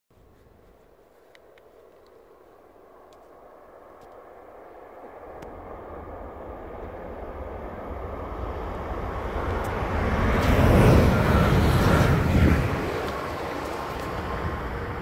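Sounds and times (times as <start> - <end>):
train wheels rumbling on rails: 6.5 - 15.0.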